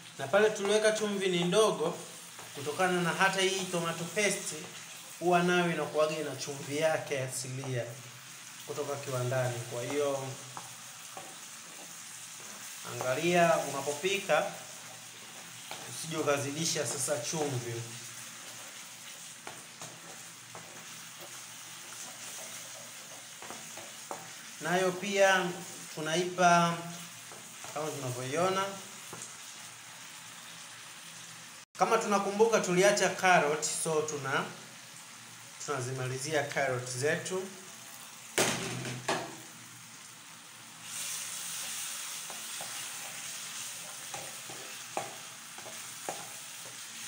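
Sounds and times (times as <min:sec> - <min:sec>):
tomatoes sizzling in a pan: 0:00.0 - 0:47.0
wooden spoon stirring: 0:00.1 - 0:26.1, 0:26.8 - 0:28.2, 0:41.0 - 0:47.0.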